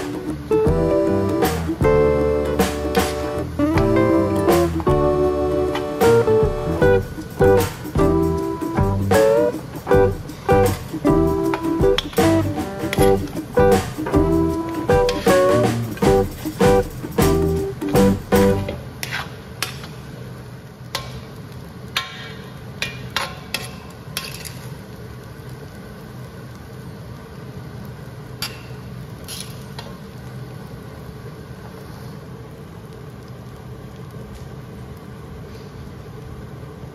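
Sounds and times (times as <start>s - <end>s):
steady low hum: 0.0s - 18.8s
metal spatula scraping a wok: 19.0s - 19.8s.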